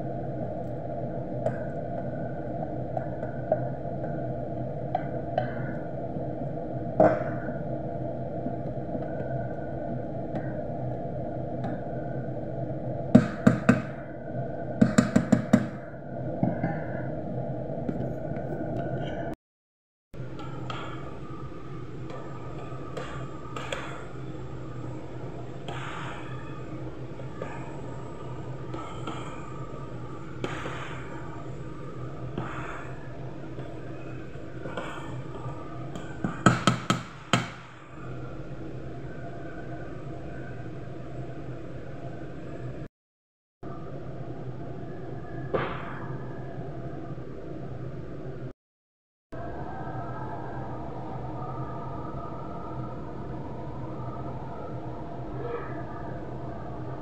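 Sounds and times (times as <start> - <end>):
background hum and hiss: 20.2 - 42.9.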